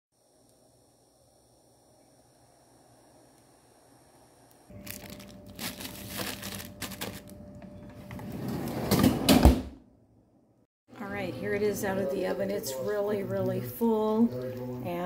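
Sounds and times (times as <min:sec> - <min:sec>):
plastic bag crinkling: 0:04.7 - 0:07.5
freezer drawer sliding shut: 0:08.1 - 0:09.8.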